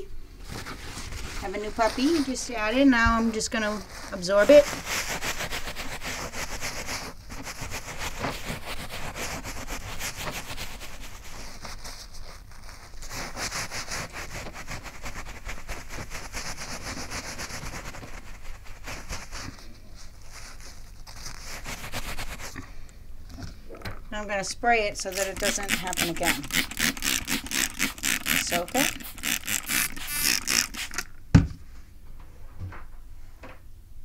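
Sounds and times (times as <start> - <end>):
towel scrubbing carpet: 0.5 - 22.6, 25.0 - 31.1.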